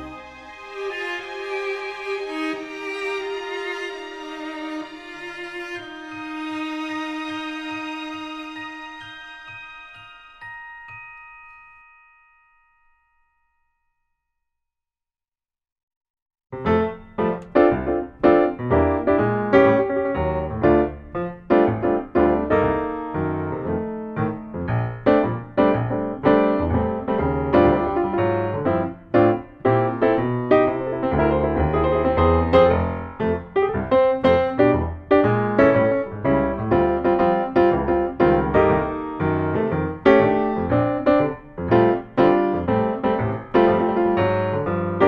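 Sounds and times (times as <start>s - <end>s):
piano music: 0.0s - 12.8s, 16.6s - 45.0s
ringing music notes: 4.1s - 14.0s.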